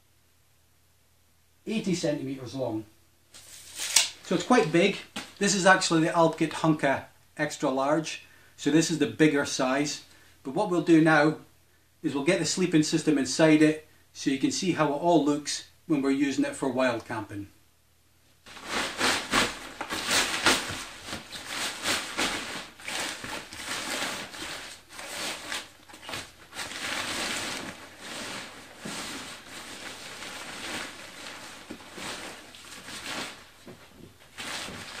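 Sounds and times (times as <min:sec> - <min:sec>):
fabric rustling and swishing: 0:18.4 - 0:35.0.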